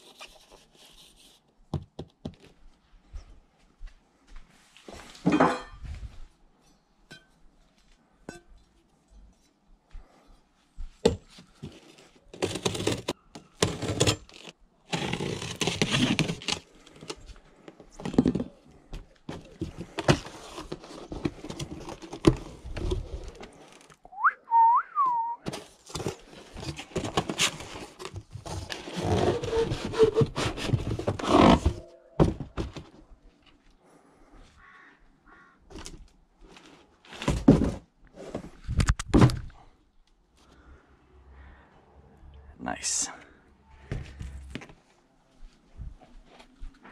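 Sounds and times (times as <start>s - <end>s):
cardboard scraping and tearing: 11.6s - 17.2s, 19.3s - 23.8s, 25.5s - 32.9s
rising and falling whistle: 24.1s - 25.4s.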